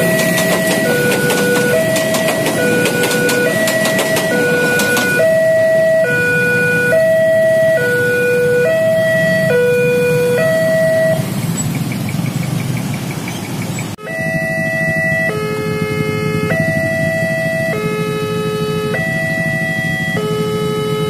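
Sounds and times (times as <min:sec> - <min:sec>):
level crossing two-note alarm: 0:00.0 - 0:11.2
crossing alarm with several notes: 0:00.0 - 0:11.3, 0:14.0 - 0:21.0
motorcycle engines idling: 0:00.0 - 0:21.0.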